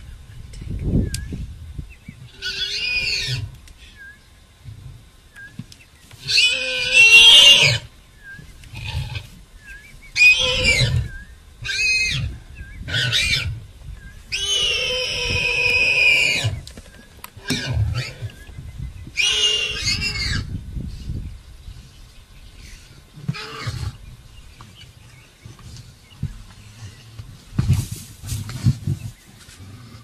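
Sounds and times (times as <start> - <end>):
warthog squealing: 2.3 - 3.5, 6.2 - 7.9, 10.2 - 13.6, 14.3 - 16.6, 19.2 - 20.5.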